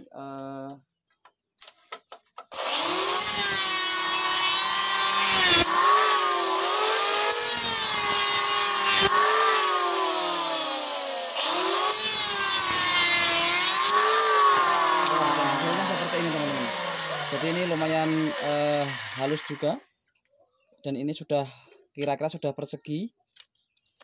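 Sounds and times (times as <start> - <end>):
electric hand planer cutting wood: 2.5 - 19.8.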